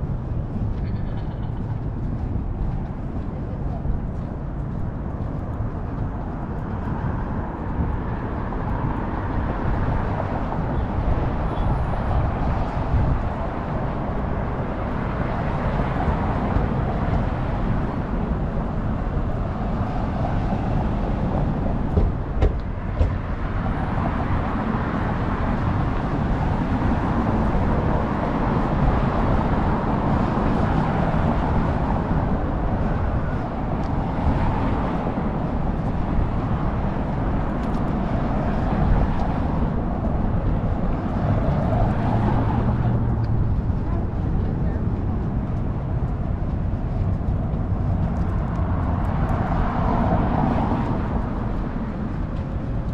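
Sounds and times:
passing cars and tyres: 0.0 - 52.9
sharp knocks: 21.9 - 23.2.

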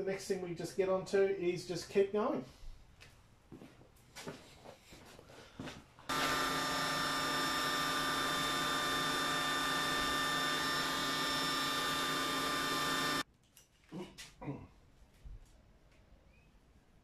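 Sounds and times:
machine whine and hiss: 6.1 - 13.2.

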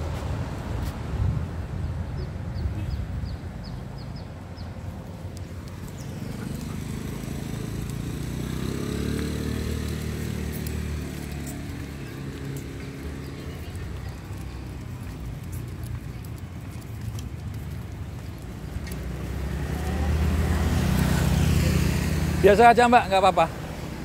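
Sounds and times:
vehicle engine passing: 5.6 - 24.0.

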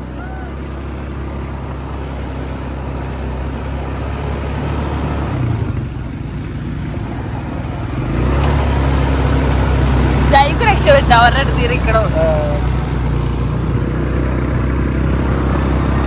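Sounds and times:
road and wind noise: 0.0 - 16.0
vehicle engine low rumble: 0.0 - 16.0.

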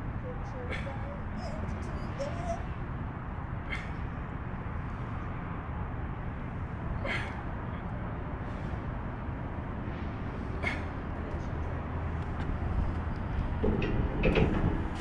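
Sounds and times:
low outdoor rumble: 0.0 - 15.0
sharp exhaled breaths: 3.4 - 5.5, 6.4 - 7.7, 8.4 - 11.2.

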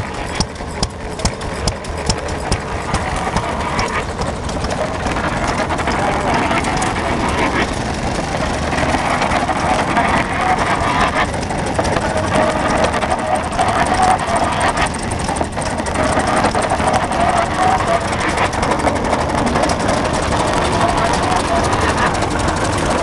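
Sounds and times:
grain mill clatter: 0.0 - 23.0
stationary engine running: 0.0 - 23.0.

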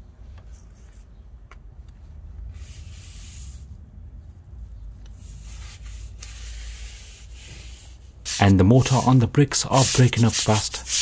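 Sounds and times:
low steady rumble: 1.7 - 8.3
brush swishing on wet brick: 8.3 - 11.0.

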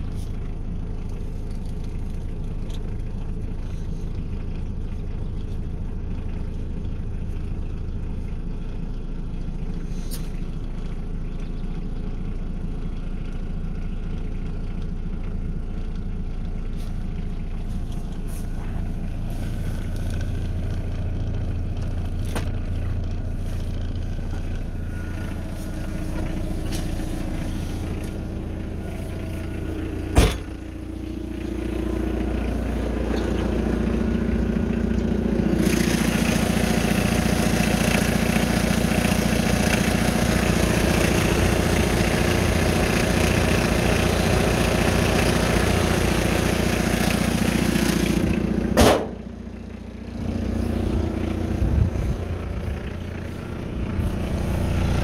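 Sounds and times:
diesel engine idling: 0.0 - 55.0
loud metal slams: 30.1 - 30.6, 48.8 - 49.2.

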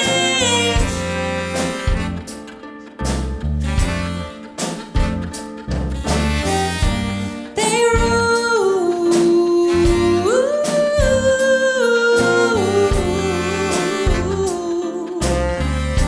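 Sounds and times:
low bass notes pulsing: 0.0 - 2.3, 3.0 - 7.4
melody of long held notes: 0.0 - 8.4
chamber-pop ensemble playing: 0.0 - 16.0.

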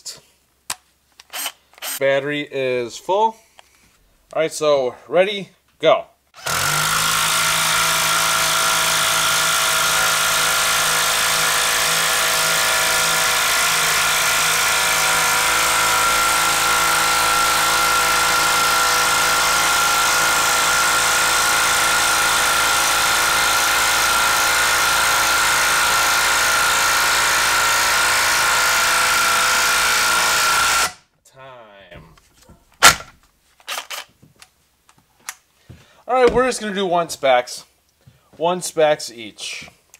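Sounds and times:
impact driver hammering: 6.4 - 31.0.

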